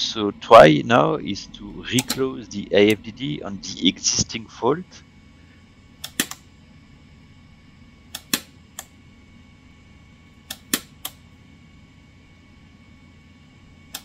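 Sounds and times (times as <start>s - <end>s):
breaker snapping clicks: 6.0s - 6.4s, 8.1s - 8.9s.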